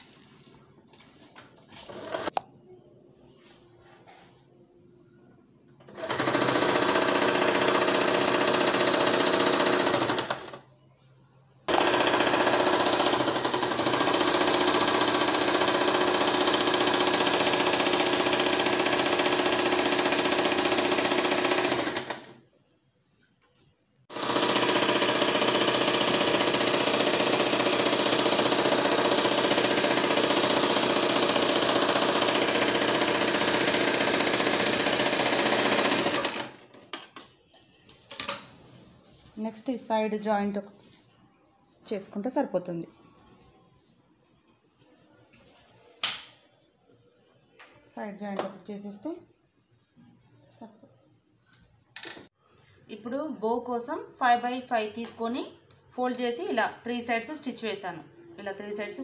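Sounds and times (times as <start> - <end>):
electric sewing machine running: 1.9 - 2.4, 5.9 - 10.6, 11.7 - 22.4, 24.1 - 36.6.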